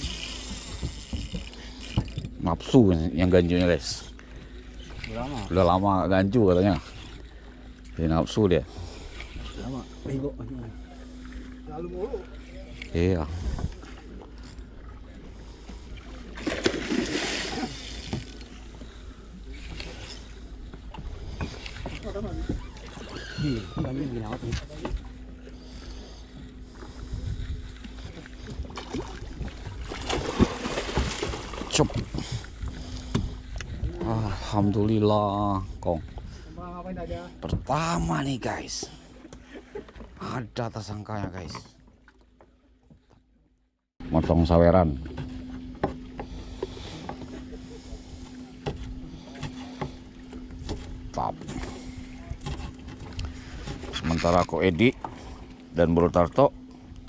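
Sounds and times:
water noise: 0.0 - 43.1, 44.0 - 57.0
faint steady hum: 0.0 - 43.3
low boat rumble: 0.0 - 57.0
wind: 0.0 - 57.0.

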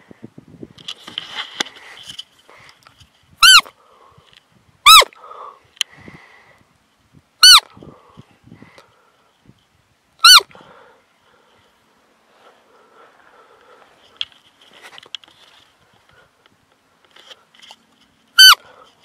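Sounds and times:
deer lure call squeaks: 3.4 - 3.7, 4.9 - 5.2, 7.4 - 7.7, 10.2 - 10.5, 18.3 - 18.9
faint rustling: 10.7 - 19.0.

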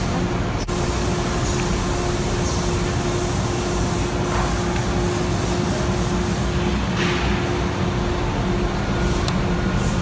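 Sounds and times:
steady hiss: 0.6 - 6.7.

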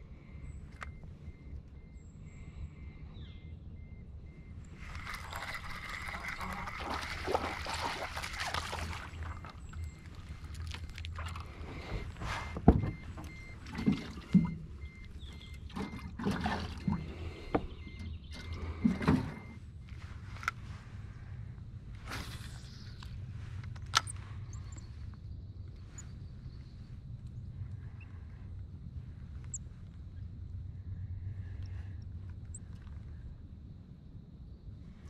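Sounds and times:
knocks and thumps of fish: 10.5 - 14.6.

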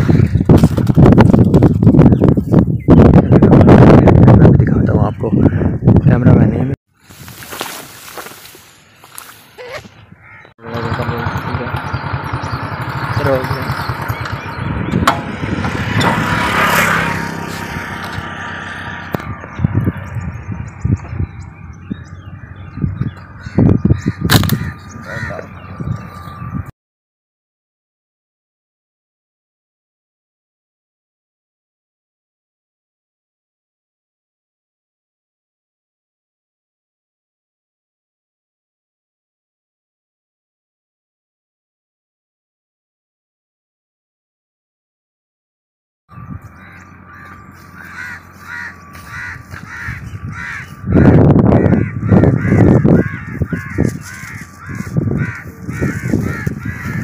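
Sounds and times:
wind buffeting microphone: 0.0 - 7.4, 13.8 - 26.7, 46.1 - 57.0
crow cawing: 9.6 - 10.5, 23.3 - 25.6, 46.1 - 57.0.

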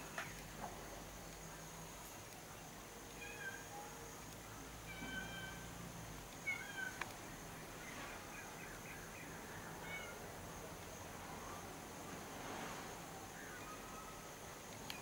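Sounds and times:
faint animal calls: 4.8 - 5.8, 6.4 - 7.0, 7.9 - 10.3.

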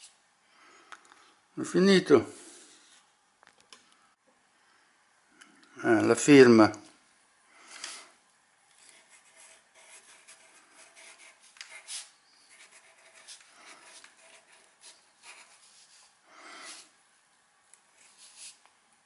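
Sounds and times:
pencil scratching on paper: 8.8 - 16.9, 17.9 - 18.6.

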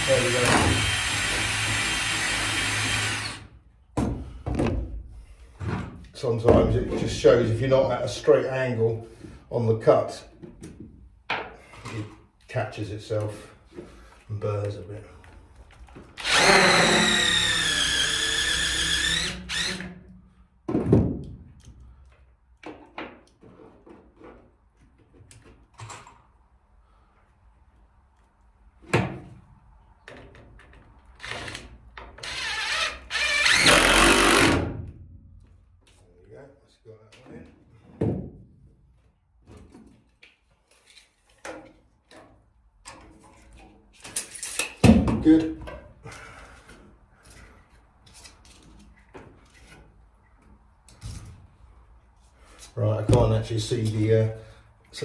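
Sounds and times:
cordless drill drilling: 0.0 - 3.5, 16.2 - 19.9, 31.2 - 31.6, 32.2 - 34.6.

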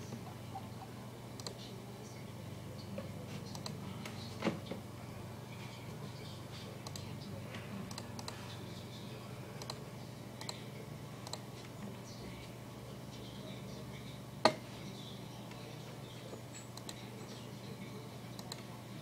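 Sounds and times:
steady low hum: 0.0 - 19.0
computer keys and mouse clicking: 1.4 - 1.6, 3.5 - 3.8, 6.8 - 7.1, 7.9 - 8.4, 9.6 - 9.8, 16.7 - 17.0.

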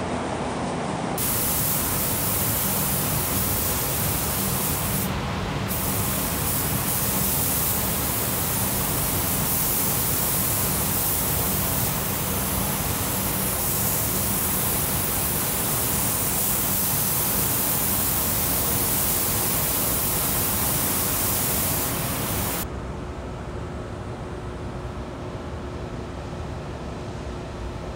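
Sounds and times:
spray guns hissing: 1.2 - 22.6.

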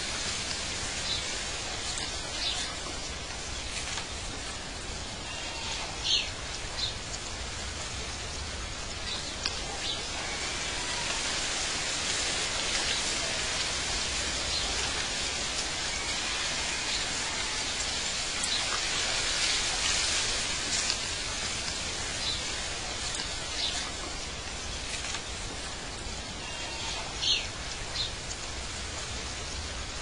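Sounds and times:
outdoor nature ambience hiss: 0.0 - 30.0.

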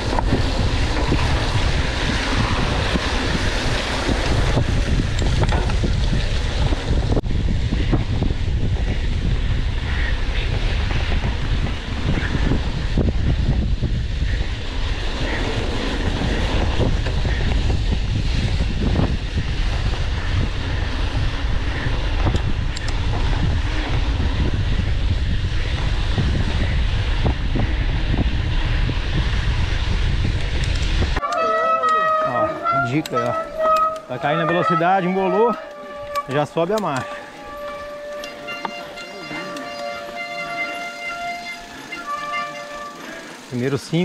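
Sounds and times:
wind buffeting microphone: 0.0 - 31.3
bike tyres on wet dirt: 0.0 - 44.0.

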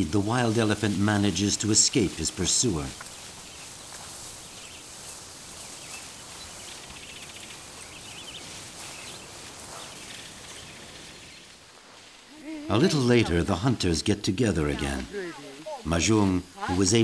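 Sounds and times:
grass and brush rustling: 0.0 - 17.0
faint bird chirps: 3.0 - 11.6.

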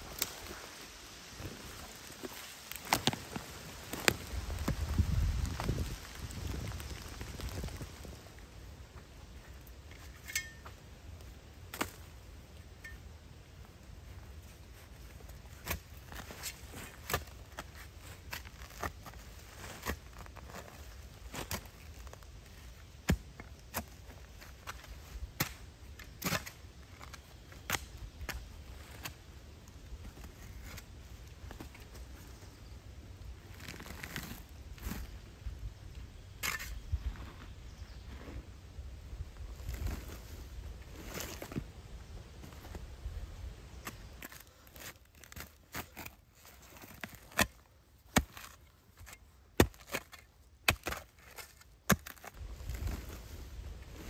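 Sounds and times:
shovel chopping into soil: 23.0 - 29.2, 43.8 - 53.1
spade chopping into stony soil: 46.8 - 52.4.

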